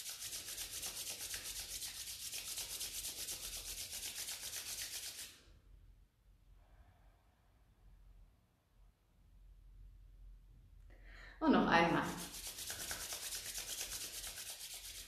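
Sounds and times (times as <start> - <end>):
palms rubbing together: 0.0 - 5.4, 12.0 - 15.0.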